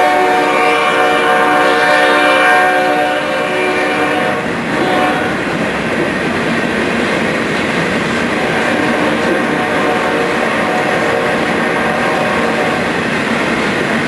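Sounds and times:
train horn chord: 0.0s - 5.5s, 8.4s - 13.0s
train wheels rumbling on rails: 0.0s - 14.0s.

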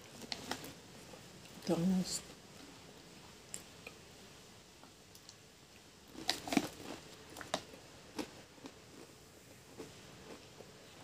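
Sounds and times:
potato chips being chewed: 6.1s - 11.0s.

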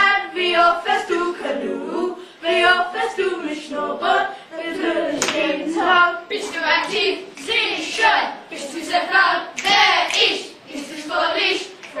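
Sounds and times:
voices singing a cappella: 0.0s - 12.0s.

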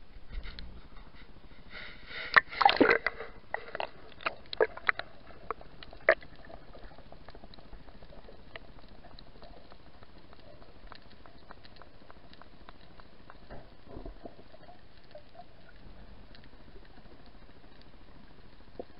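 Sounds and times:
sharp underwater clicks: 2.3s - 17.9s
bubbling underwater: 2.4s - 17.7s
splash into water: 2.5s - 3.0s.

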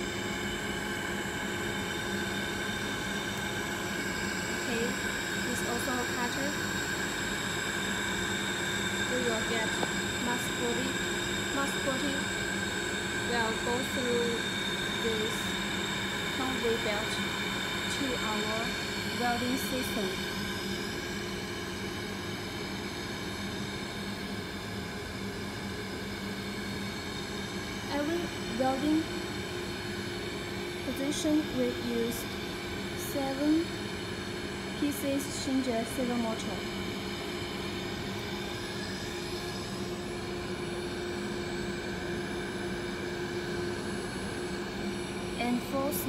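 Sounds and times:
motors whining: 0.0s - 21.2s
machine mechanical hum: 0.0s - 46.0s
steady machine tones: 0.0s - 46.0s.

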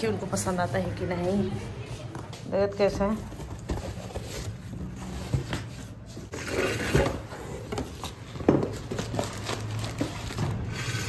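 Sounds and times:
cardboard knocks and scrapes: 3.2s - 10.6s
packaging rustling: 3.2s - 11.0s.

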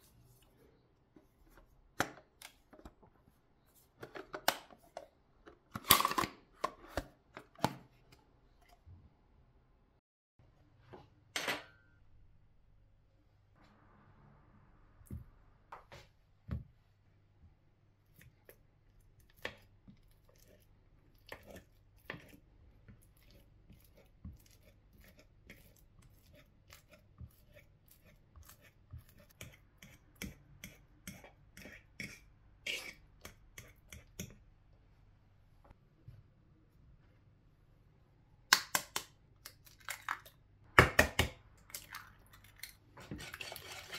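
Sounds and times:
soft squishing: 18.0s - 34.8s.

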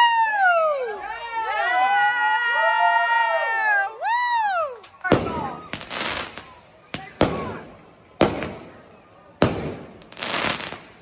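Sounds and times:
fireworks bangs: 4.8s - 11.0s
fireworks crackling: 4.8s - 11.0s.

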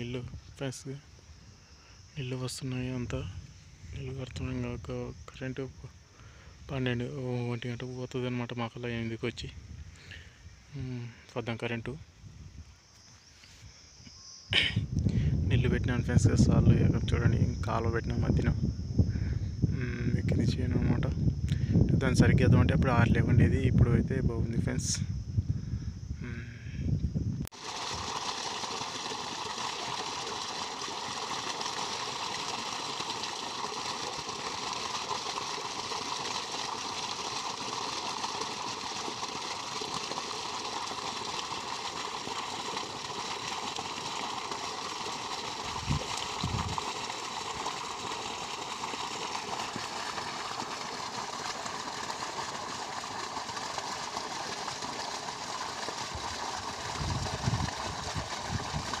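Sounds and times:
water gushing from a pipe: 27.5s - 59.0s
water splashing into a pool: 27.5s - 59.0s.

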